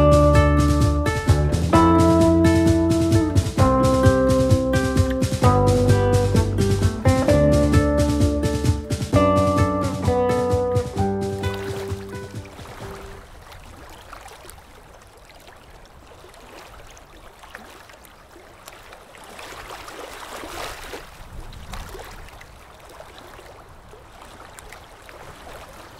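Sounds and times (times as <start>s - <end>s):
wave breaking: 0.0s - 25.9s
ocean surf washing onto sand: 0.7s - 14.3s.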